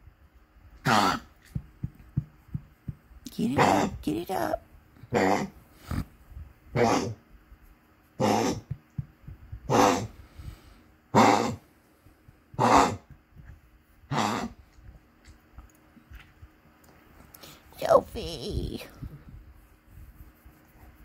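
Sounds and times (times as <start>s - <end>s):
small dog coughing: 5.1s - 6.0s, 6.8s - 7.2s, 8.2s - 8.8s, 11.2s - 11.6s, 12.6s - 13.1s, 14.1s - 14.6s.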